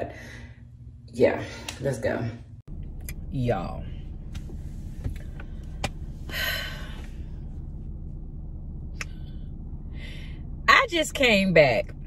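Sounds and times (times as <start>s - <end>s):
car cabin engine hum: 2.7s - 12.0s.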